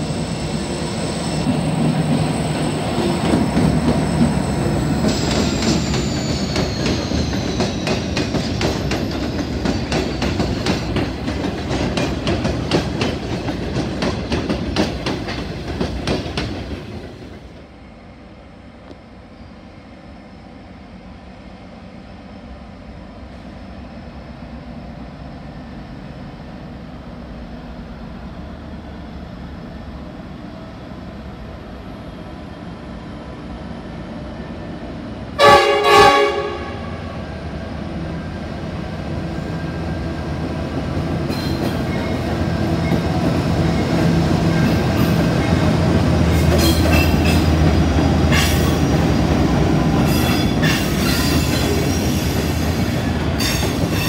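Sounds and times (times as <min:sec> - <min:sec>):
diesel locomotive running: 0:00.0 - 0:54.0
locomotive horn blasts: 0:35.4 - 0:37.2.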